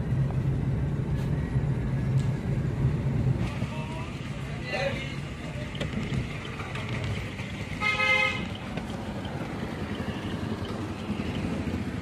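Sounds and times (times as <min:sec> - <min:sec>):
road traffic noise: 0:00.0 - 0:12.0
vehicle horn toot: 0:07.8 - 0:08.5.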